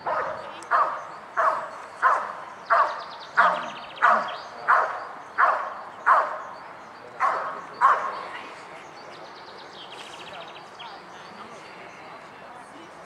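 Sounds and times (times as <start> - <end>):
dog barking: 0.0 - 6.4, 7.2 - 8.2.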